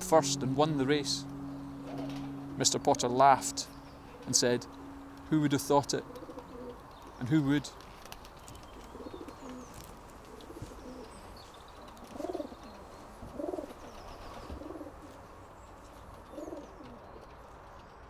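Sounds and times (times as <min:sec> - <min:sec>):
pigeons cooing: 0:01.5 - 0:03.2, 0:05.9 - 0:07.2, 0:08.0 - 0:15.2, 0:16.2 - 0:17.2.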